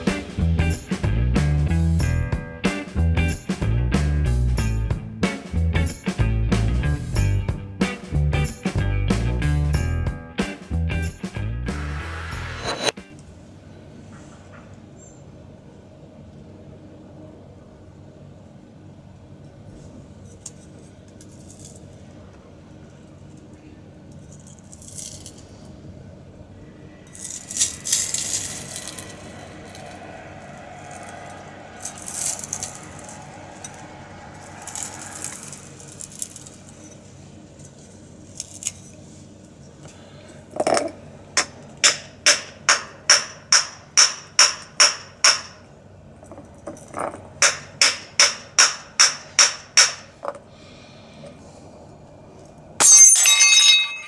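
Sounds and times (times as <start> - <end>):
short scraping sounds: 11.7 - 13.1.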